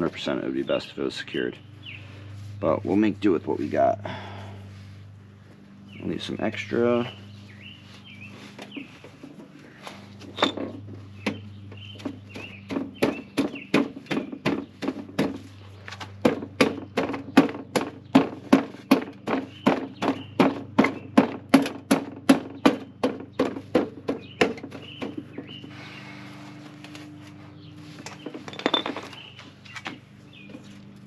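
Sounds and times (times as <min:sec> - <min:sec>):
steady low hum: 0:00.0 - 0:31.0
rapid evenly spaced knocks: 0:12.0 - 0:15.4.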